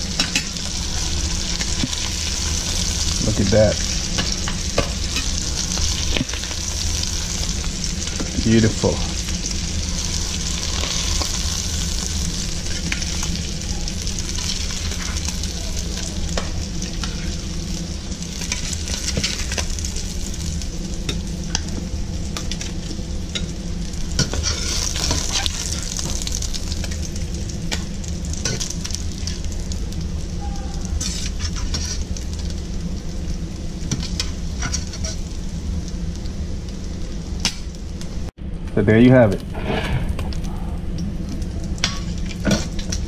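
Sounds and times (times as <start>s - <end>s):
fish sizzling in a pan: 0.0s - 38.2s, 41.0s - 43.0s
metal spatula scraping a pan: 24.2s - 25.9s, 31.0s - 32.1s, 33.9s - 35.2s.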